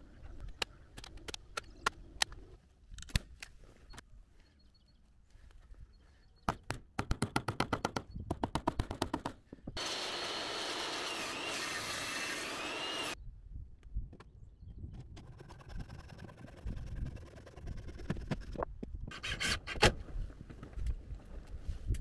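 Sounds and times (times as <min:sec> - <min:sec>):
table saw cutting timber: 0:09.8 - 0:13.2.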